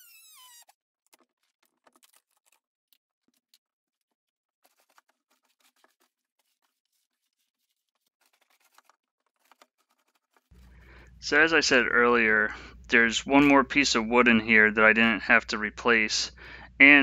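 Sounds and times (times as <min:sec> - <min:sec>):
faint scratches and clicks: 0:04.6 - 0:10.8.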